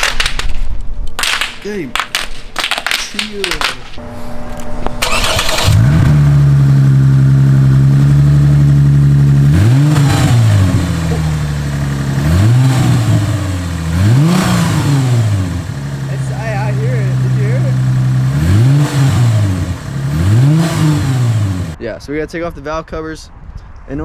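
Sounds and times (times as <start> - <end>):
car engine cranking and idling: 2.0 - 21.8
engine revving: 4.0 - 21.8.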